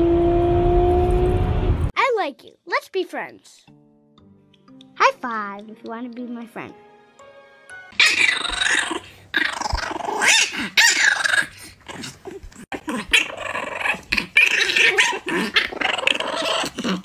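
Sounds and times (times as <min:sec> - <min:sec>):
puppy growling and yapping: 0:08.0 - 0:17.0.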